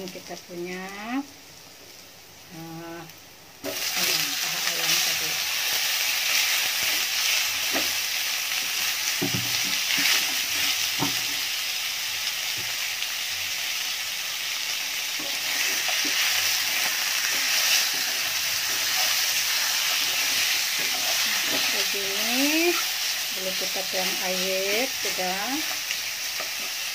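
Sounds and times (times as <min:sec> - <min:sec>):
chicken sizzling in hot oil: 0:00.0 - 0:26.9
spatula scraping a wok: 0:05.6 - 0:11.6, 0:15.1 - 0:26.9.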